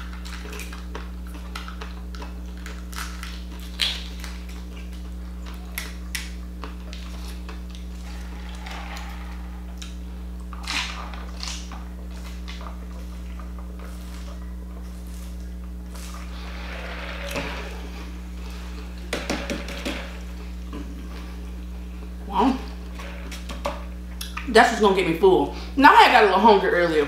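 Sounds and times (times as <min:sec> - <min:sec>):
eating crunches and chewing: 0:00.0 - 0:19.1
low electrical hum: 0:00.0 - 0:27.0.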